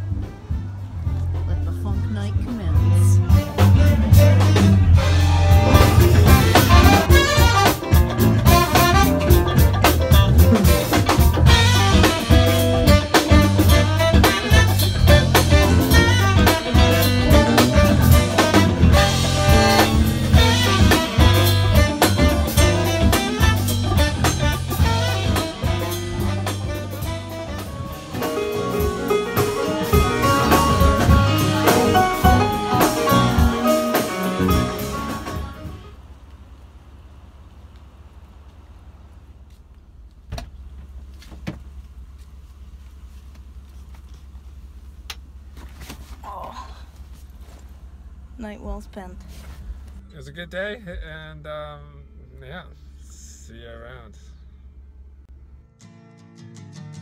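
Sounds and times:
electric guitar: 0.0s - 35.9s
drum kit beat: 0.0s - 36.0s
funk band playing: 0.0s - 36.1s.

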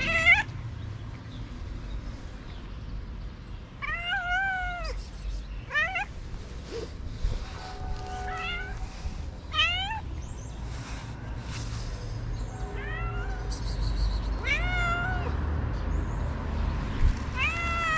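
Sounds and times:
cat meowing: 0.0s - 0.5s, 3.8s - 5.0s, 5.7s - 6.1s, 7.9s - 8.8s, 9.5s - 10.1s, 12.7s - 13.5s, 14.4s - 15.4s, 17.4s - 17.9s.

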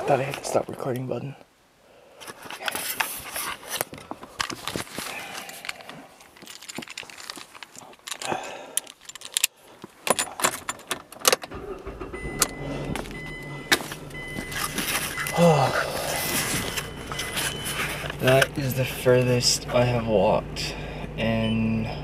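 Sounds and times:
clicks and rattles of handling: 2.2s - 11.5s, 16.3s - 18.7s
keys jangling: 5.5s - 11.5s
low steady rumble: 11.5s - 22.0s.

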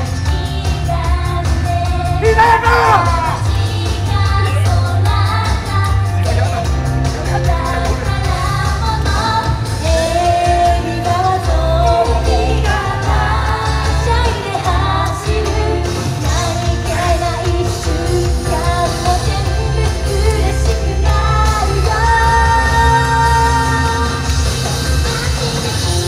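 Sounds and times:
pop accompaniment with strong bass: 0.0s - 26.0s
women singing into microphones: 7.4s - 24.4s.

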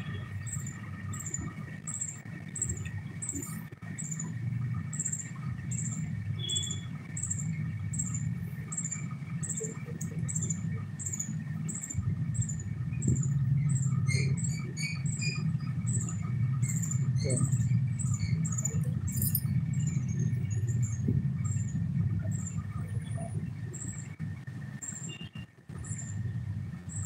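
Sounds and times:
lower chirps: 0.0s - 22.8s
steady low hum: 0.0s - 27.0s
high-pitched chirp: 4.9s - 20.9s.

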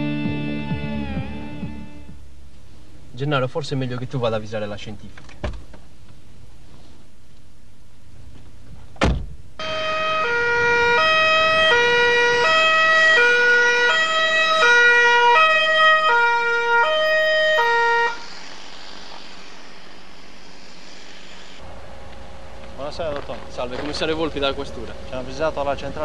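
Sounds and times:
police car two-tone siren: 9.6s - 18.4s.

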